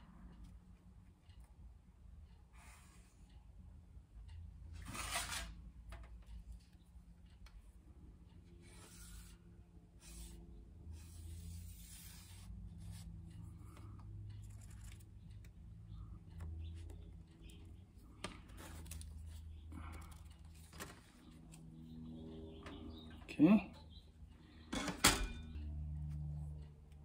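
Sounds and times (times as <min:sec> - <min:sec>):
marker scratching on metal: 0:08.6 - 0:09.4, 0:10.0 - 0:13.5.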